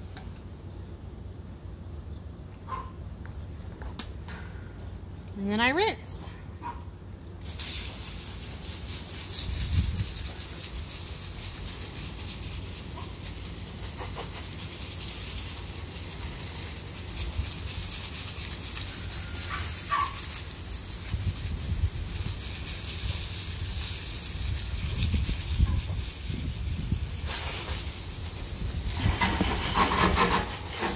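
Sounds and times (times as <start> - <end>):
hose spraying water on concrete: 7.3 - 30.9.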